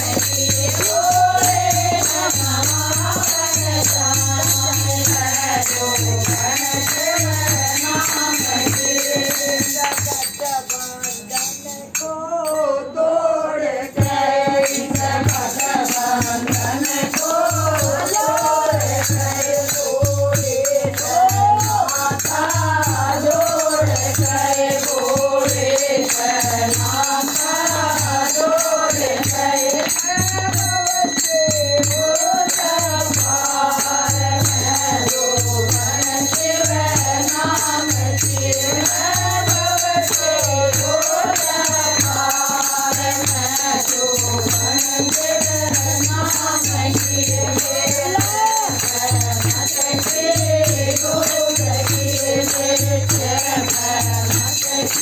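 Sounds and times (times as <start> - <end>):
jingling percussion: 0.0 - 55.0
women singing devotional song: 0.0 - 55.0.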